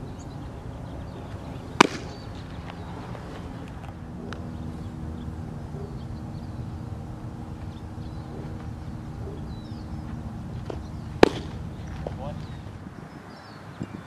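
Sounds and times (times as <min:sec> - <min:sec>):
low background hum: 0:00.0 - 0:14.0
ball popping into mitt: 0:01.8 - 0:02.2, 0:10.7 - 0:11.6.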